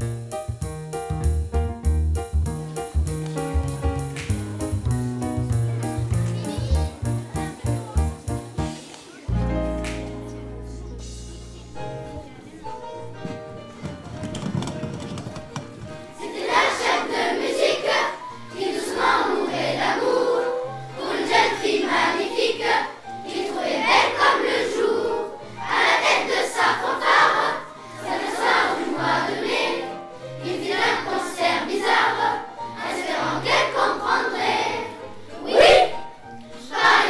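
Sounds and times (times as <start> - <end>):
accompaniment with bass line: 0.0 - 11.7
children's choir singing: 4.4 - 9.4, 10.0 - 37.0.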